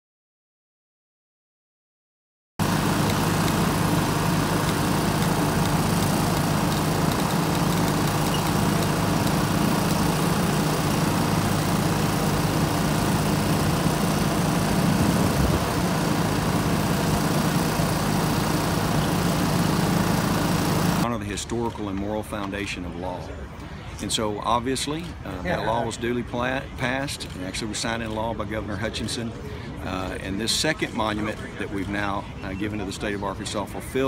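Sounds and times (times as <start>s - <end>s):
engine humming steadily: 2.6s - 21.1s.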